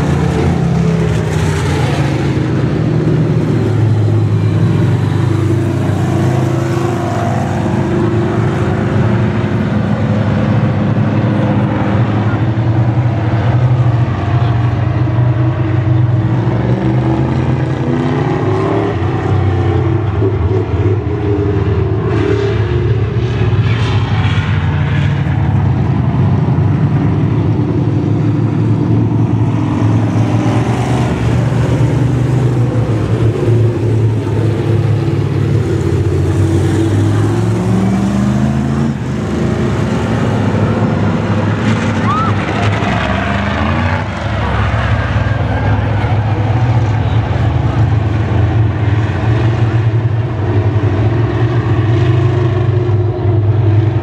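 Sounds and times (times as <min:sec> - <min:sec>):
race car engines running hard: 0:00.0 - 0:54.0.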